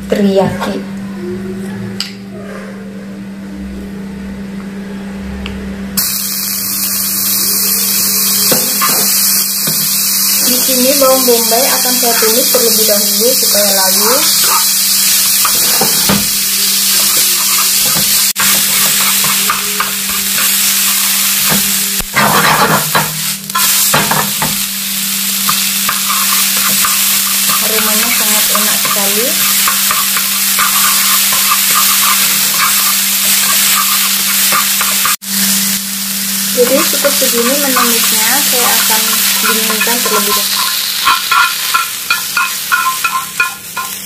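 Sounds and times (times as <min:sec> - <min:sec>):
onions sizzling in hot oil: 0:06.0 - 0:44.0
chopsticks scraping a pan: 0:14.2 - 0:24.5, 0:25.5 - 0:35.2, 0:36.6 - 0:44.0.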